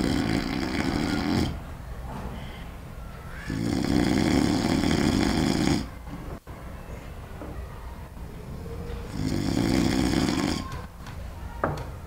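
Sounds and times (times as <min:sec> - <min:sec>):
man snoring loudly: 0:00.0 - 0:01.6, 0:03.5 - 0:05.9, 0:09.1 - 0:10.7.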